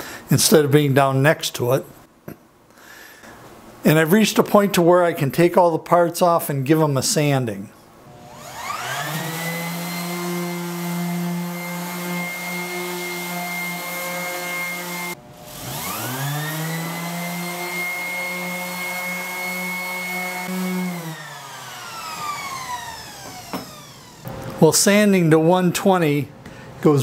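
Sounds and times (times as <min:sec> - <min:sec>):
orbital sander motor whine: 0:08.1 - 0:24.3.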